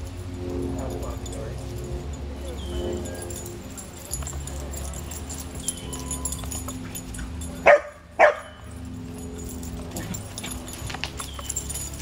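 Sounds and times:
dog barking: 7.6 - 8.7.

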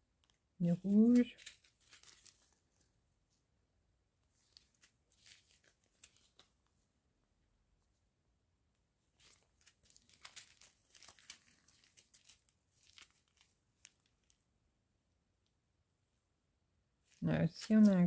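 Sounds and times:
plastic bags crinkling: 0.2 - 2.7, 4.4 - 6.5, 9.2 - 14.4, 17.2 - 18.0.

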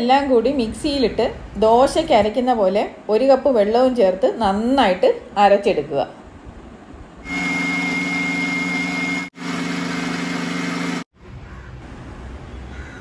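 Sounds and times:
mixer grinder motor whine: 7.2 - 11.1.

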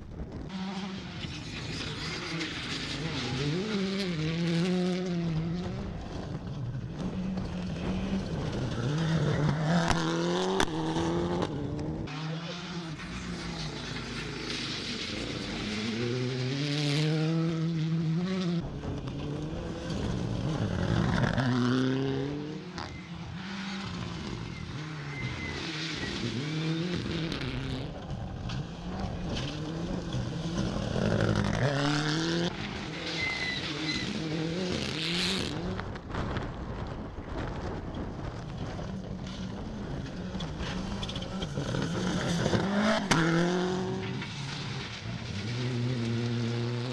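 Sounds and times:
car engines revving: 0.0 - 46.9
cars passing by: 38.5 - 46.9.

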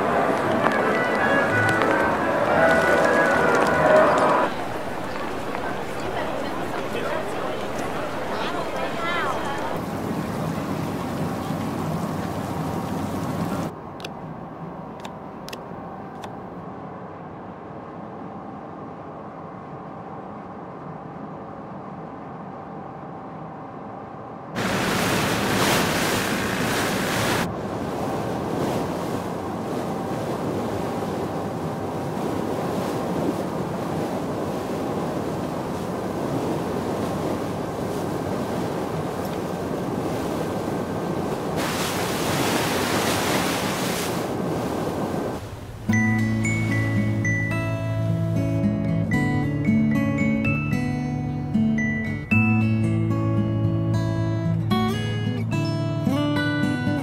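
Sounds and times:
rush of water and wind: 0.0 - 19.9, 24.5 - 49.3
boat engine hum: 0.0 - 22.0, 24.6 - 51.9.

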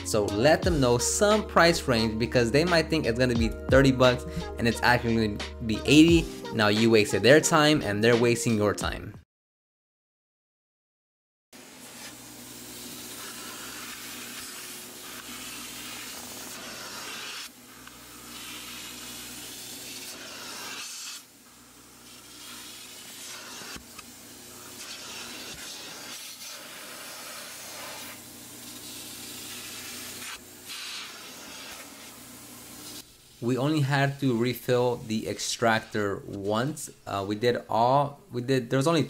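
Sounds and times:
water and air hissing: 11.6 - 21.3, 22.0 - 33.8.

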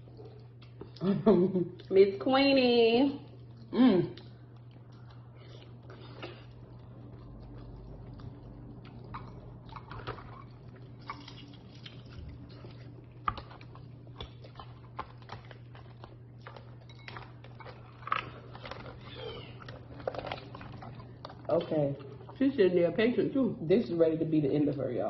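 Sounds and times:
chewing and biting: 0.0 - 1.0, 3.2 - 22.4
low hum: 0.0 - 23.8.

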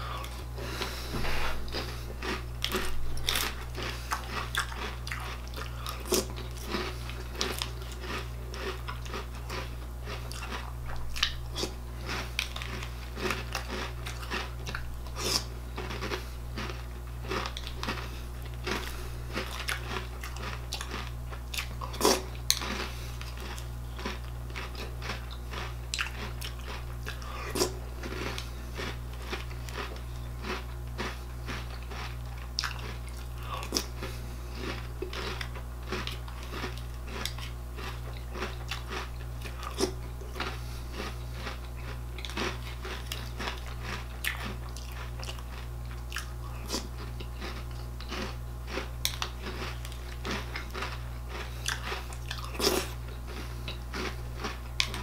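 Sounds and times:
person chewing crunchy cereal: 0.0 - 55.0
steady low hum: 0.0 - 55.0.

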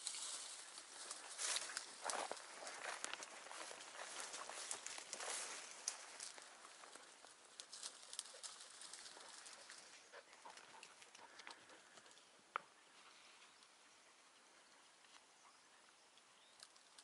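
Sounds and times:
rustling of dry brush: 0.0 - 13.8
twig snaps and clicks: 0.1 - 9.8, 16.2 - 17.0.

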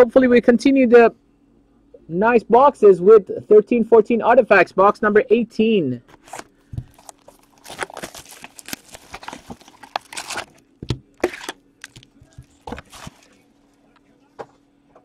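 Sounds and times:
cardboard and wrapping rustling: 6.1 - 13.5
box cutter cutting cardboard: 9.8 - 13.3
box knocking: 10.8 - 11.1.

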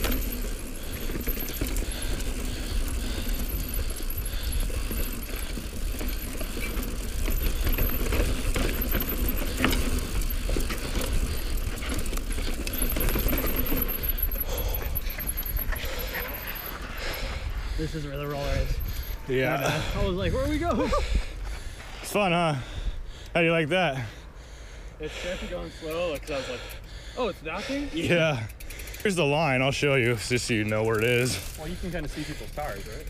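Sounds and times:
bike rattling and clicking: 0.0 - 33.0
wind rumbling on microphone: 16.7 - 21.8.

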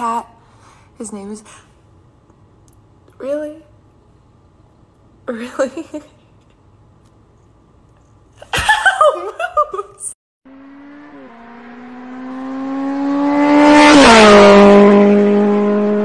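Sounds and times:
person laughing: 8.4 - 10.1.

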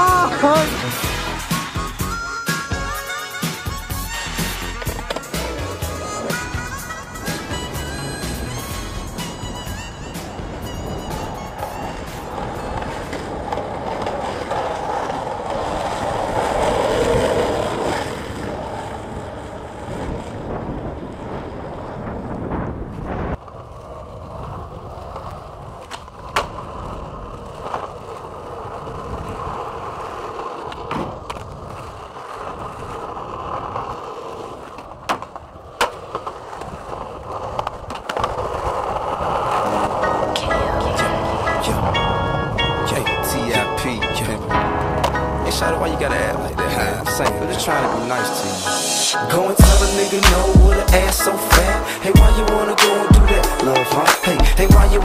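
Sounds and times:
skateboard wheels rolling on pavement: 0.0 - 55.0
skateboard wooden clacks: 4.3 - 20.4, 22.9 - 42.1.

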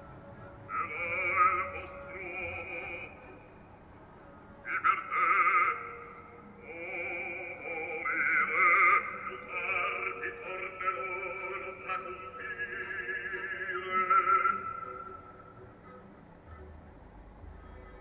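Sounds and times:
operatic singing with vibrato: 0.6 - 3.7, 4.5 - 15.7.

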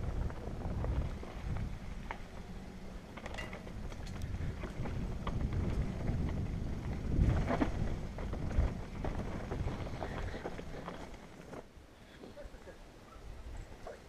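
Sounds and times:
wind on microphone: 0.0 - 2.5, 3.7 - 10.9
bike knocks and rattles: 0.0 - 11.7
bike tyres on dirt: 0.0 - 13.6.

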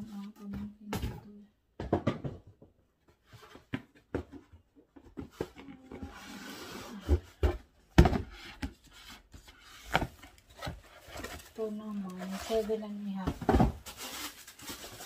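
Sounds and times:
cardboard rustling and scraping: 3.1 - 15.0
boxes knocking together: 13.2 - 14.0.

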